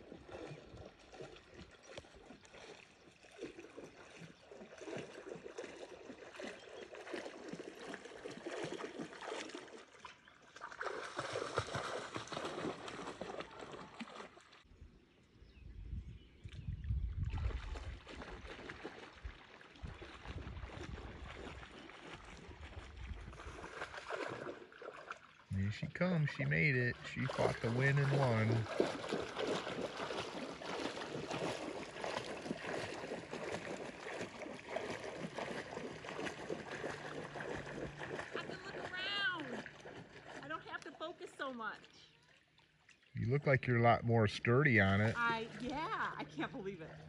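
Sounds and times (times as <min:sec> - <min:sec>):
water lapping against dock: 0:00.0 - 0:14.8, 0:16.2 - 0:47.0
wind buffeting microphone: 0:14.8 - 0:18.5, 0:19.2 - 0:24.0.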